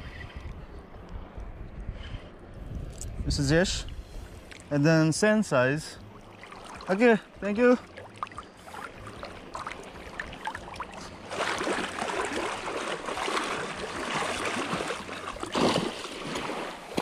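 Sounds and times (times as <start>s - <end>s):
shallow water splashing: 5.8s - 17.0s.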